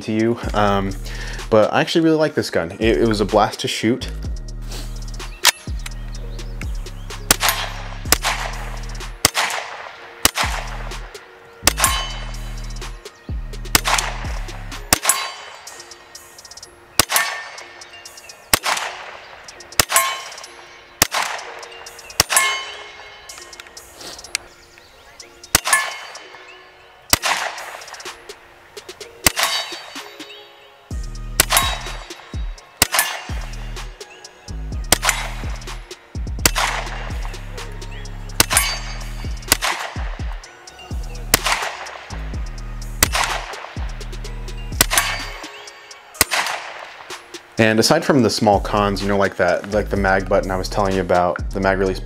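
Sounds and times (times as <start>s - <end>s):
carbine gunshots: 7.3s - 12.4s, 13.7s - 15.8s, 17.0s - 17.8s, 18.5s - 23.7s, 25.5s - 26.4s, 27.1s - 28.3s, 29.2s - 30.1s, 31.4s - 33.6s, 34.9s - 35.6s, 36.4s - 37.3s, 38.4s - 40.4s, 41.3s - 42.1s, 43.0s - 43.9s, 44.8s - 45.4s, 46.2s - 47.2s.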